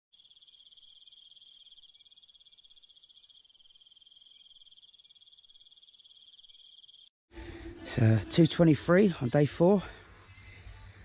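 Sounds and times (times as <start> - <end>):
insect trilling: 0.1 - 7.1.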